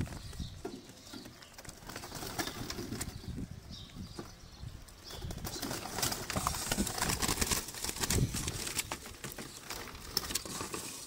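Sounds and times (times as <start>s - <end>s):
dove wings fluttering: 0.0s - 3.5s, 5.1s - 11.0s.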